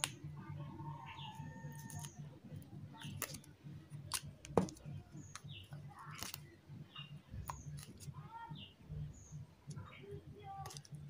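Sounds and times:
scissors snipping wire: 1.7s - 2.2s.

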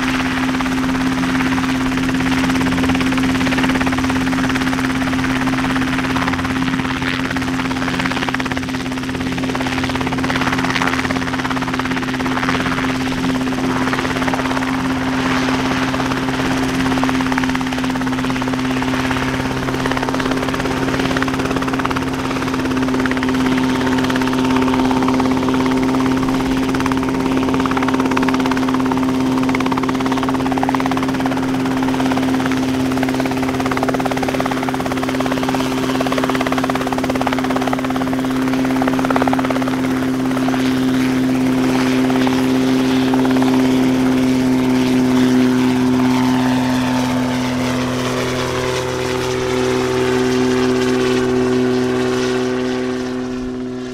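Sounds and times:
helicopter engine and rotor drone: 0.0s - 53.9s.

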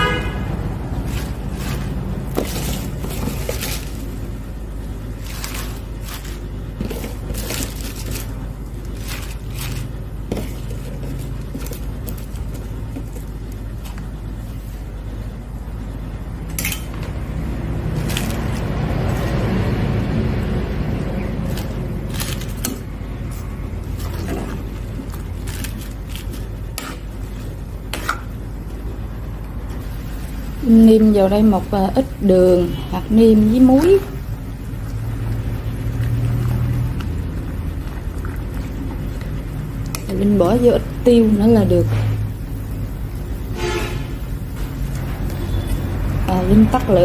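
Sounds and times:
steady low hum: 0.0s - 47.0s
cabbage leaves rustling and crunching: 0.8s - 4.2s, 5.2s - 12.9s, 17.9s - 19.6s, 21.4s - 26.5s.

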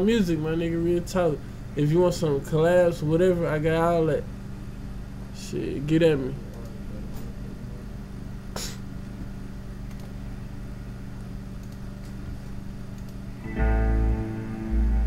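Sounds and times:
steady low hum: 0.0s - 15.0s
single click: 13.0s - 13.2s.

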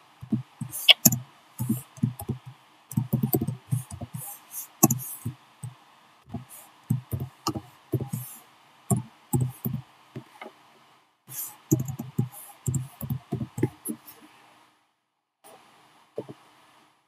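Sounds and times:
keyboard keystrokes: 11.7s - 13.7s.

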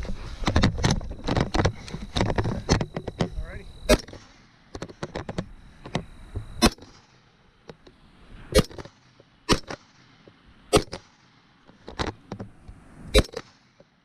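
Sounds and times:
gunshots: 3.9s - 4.4s, 6.6s - 7.2s, 8.5s - 9.9s, 10.7s - 11.2s, 13.1s - 13.7s.

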